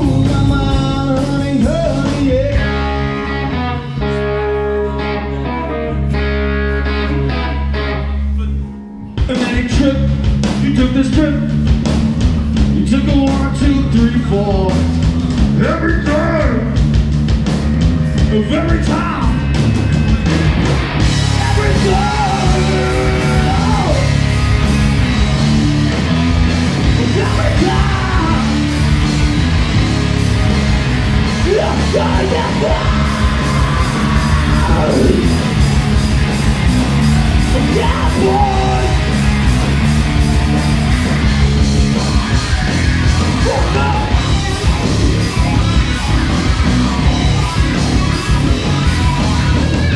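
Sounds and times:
singer yelling vocals: 0.0s - 3.0s, 15.5s - 16.8s, 18.2s - 19.9s, 21.3s - 24.2s, 27.0s - 28.7s, 31.4s - 35.7s, 37.5s - 39.2s, 42.8s - 46.1s
heavy rock band playing: 0.0s - 49.9s.

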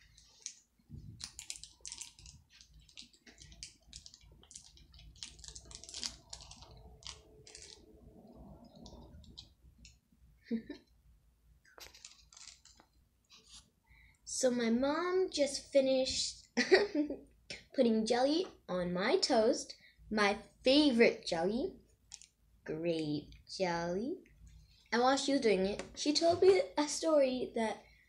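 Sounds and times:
plastic packs crinkling: 0.0s - 7.9s, 11.7s - 13.0s.

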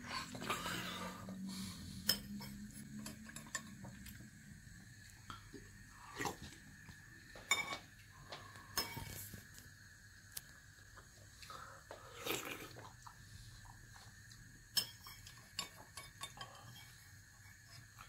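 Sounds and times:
spoon clinking on ceramic plate: 7.5s - 7.8s.

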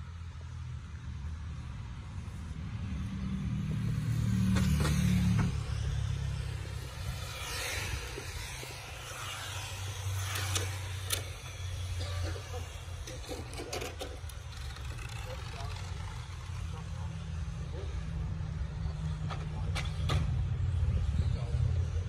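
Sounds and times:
rc cars motor whine passing: 0.0s - 22.0s.

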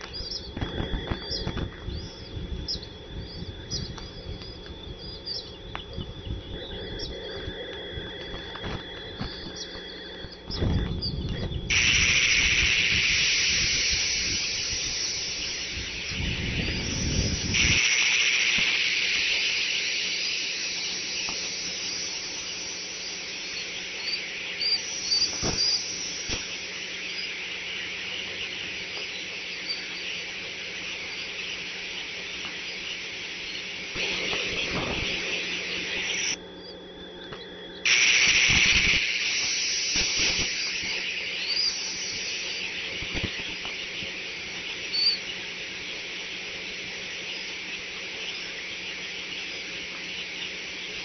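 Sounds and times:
faint high chirps: 0.0s - 51.0s
steady high hiss: 0.0s - 51.0s
low rumble: 0.4s - 18.5s.

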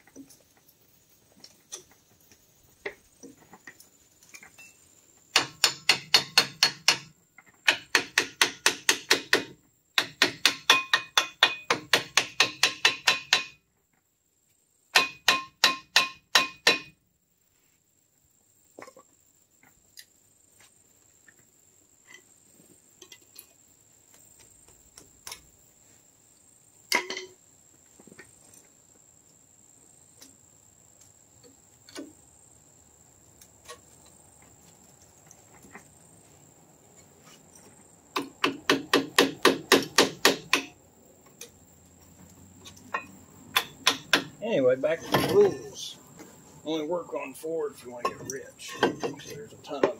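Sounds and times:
hammer striking metal: 5.4s - 7.1s, 7.7s - 13.6s, 15.0s - 17.0s, 38.4s - 40.7s, 43.0s - 44.3s.

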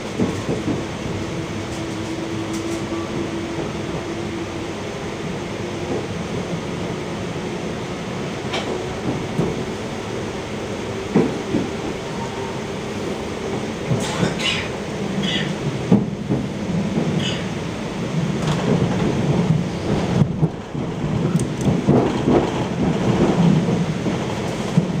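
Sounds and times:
train rumble inside carriage: 0.0s - 25.0s
track knocks and clicks: 8.4s - 9.6s, 18.1s - 25.0s.

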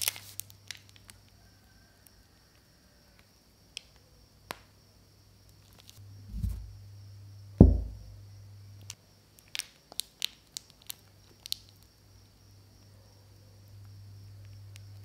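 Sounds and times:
plastic piping bag crackling: 0.0s - 1.0s, 9.4s - 11.8s
soft thumps on tabletop: 6.3s - 6.7s, 7.6s - 8.0s.

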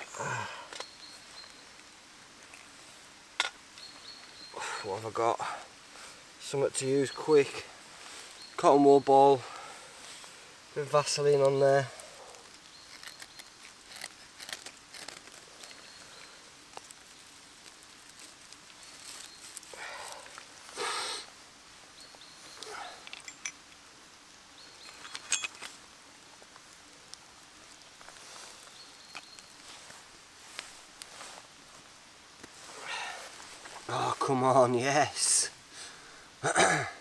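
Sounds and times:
twigs and grass rustling and snapping: 0.0s - 5.3s, 6.8s - 20.8s, 21.9s - 35.3s
flint striker scraping: 11.4s - 20.4s.

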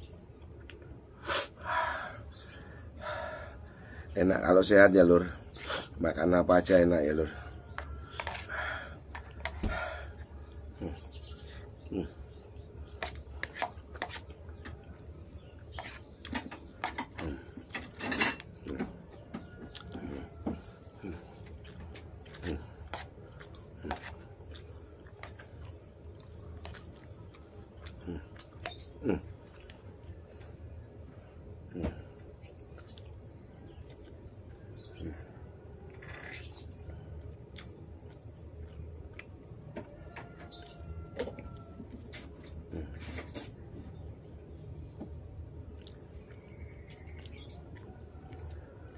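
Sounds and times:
wet chewing and lip smacks: 19.6s - 30.5s, 32.7s - 34.9s, 37.1s - 39.7s, 45.6s - 48.9s.

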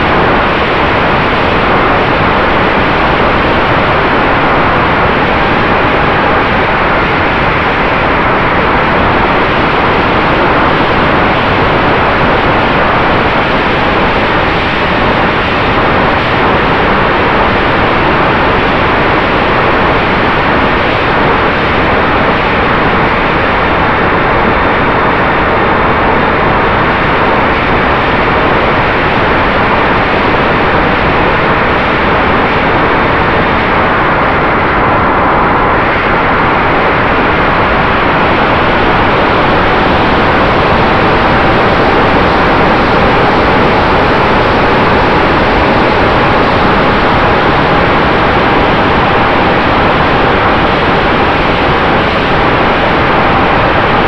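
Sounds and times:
wind rushing over camera: 0.0s - 54.0s.

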